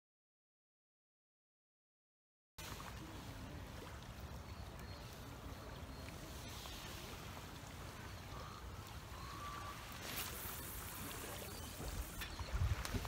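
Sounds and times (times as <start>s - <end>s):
choppy water hissing: 2.6s - 13.0s
wind buffeting microphone: 10.6s - 13.0s.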